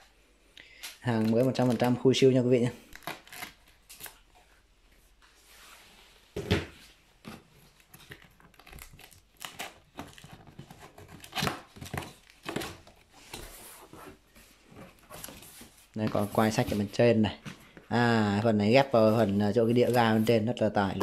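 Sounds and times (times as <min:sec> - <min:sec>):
packing tape tearing: 0:02.8 - 0:04.2, 0:08.0 - 0:13.0
cardboard flaps rustling and scraping: 0:10.0 - 0:18.1.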